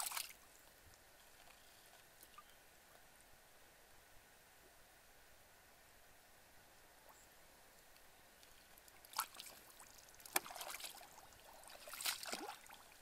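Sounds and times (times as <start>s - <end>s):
muddy water splashing and sloshing: 0.0s - 0.4s, 8.4s - 13.0s.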